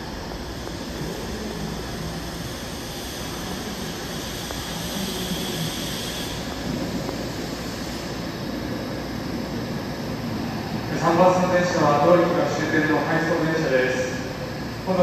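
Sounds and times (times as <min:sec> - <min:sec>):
subway train humming and whirring: 0:00.0 - 0:15.0
high hiss: 0:00.1 - 0:09.0.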